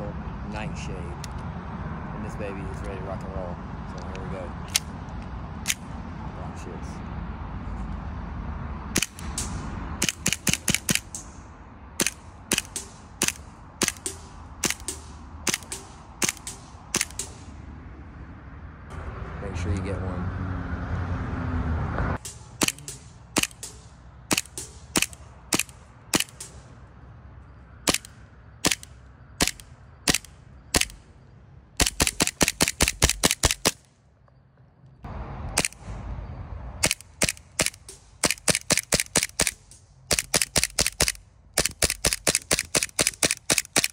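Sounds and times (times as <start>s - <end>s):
airsoft pistol shots: 12.0s - 17.4s, 22.2s - 26.6s.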